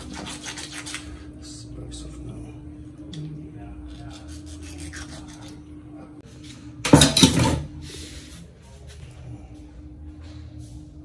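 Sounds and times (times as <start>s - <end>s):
knife scraping on cutting board: 0.0s - 1.2s, 3.9s - 5.6s.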